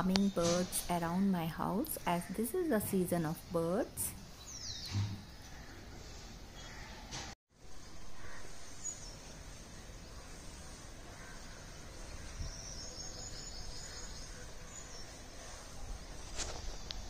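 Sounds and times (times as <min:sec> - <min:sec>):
outdoor ambient hiss: 0:00.0 - 0:17.0.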